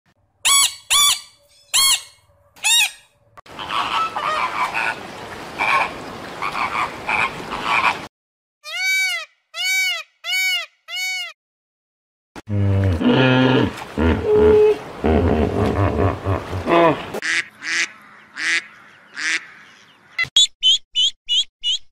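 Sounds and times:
macaws squawking: 0:00.5 - 0:05.0, 0:17.2 - 0:20.8
deep grunting calls: 0:12.5 - 0:17.2.

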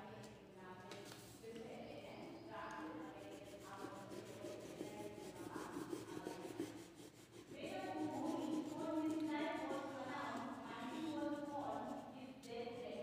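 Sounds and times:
crayon rubbing on paper: 0:02.7 - 0:13.0.

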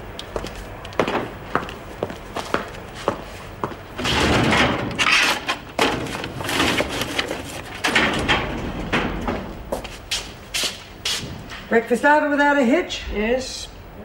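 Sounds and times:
metal drawer sliding open: 0:04.0 - 0:09.8
papers handled: 0:05.0 - 0:08.1.

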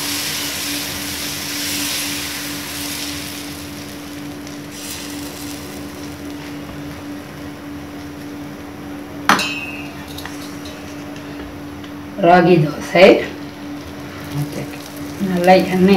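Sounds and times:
batter hissing on hot pan: 0:00.0 - 0:07.3, 0:14.2 - 0:15.8
steady hum: 0:00.0 - 0:15.9
metal ladle clink: 0:09.3 - 0:10.9.

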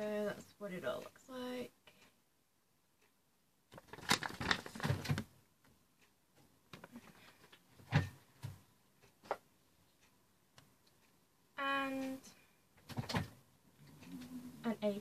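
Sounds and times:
paper rustling and crinkling: 0:03.8 - 0:05.3.

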